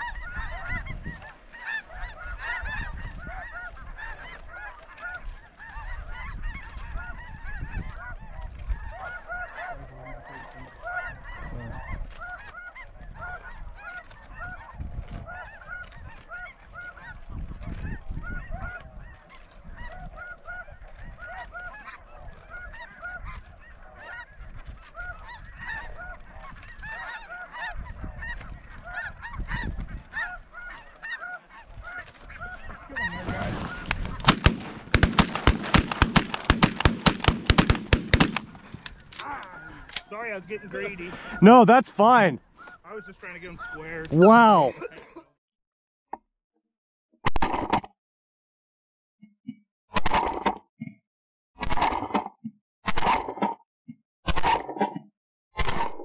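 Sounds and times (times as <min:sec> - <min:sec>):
wind rumbling on microphone: 0:00.0 - 0:09.4, 0:12.8 - 0:16.2, 0:17.0 - 0:21.3, 0:27.7 - 0:30.5, 0:31.7 - 0:36.1
flock of geese honking: 0:00.0 - 0:44.8.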